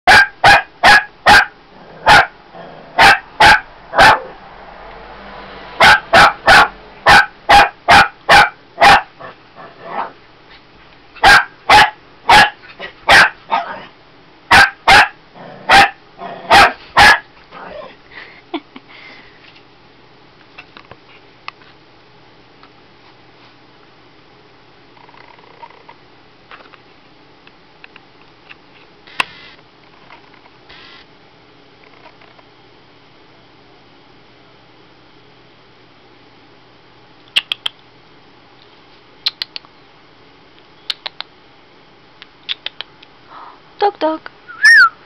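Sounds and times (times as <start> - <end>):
puppy barking: 0.1 - 4.4, 5.8 - 10.2, 11.2 - 13.9, 14.5 - 17.9.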